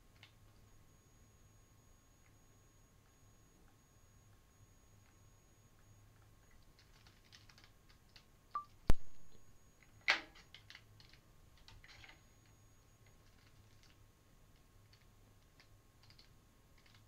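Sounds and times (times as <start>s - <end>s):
keyboard typing: 6.5s - 9.5s, 14.9s - 17.0s
short beep-like blip: 8.6s - 9.6s.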